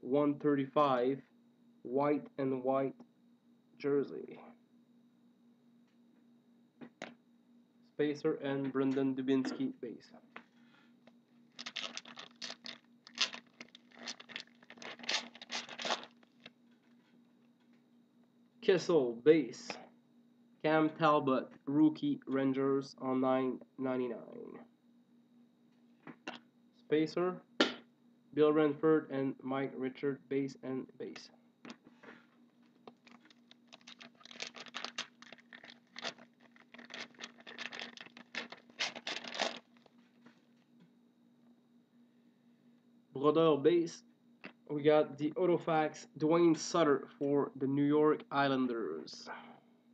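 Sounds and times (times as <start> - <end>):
wrapper crinkling: 11.5 - 16.6, 32.6 - 40.0.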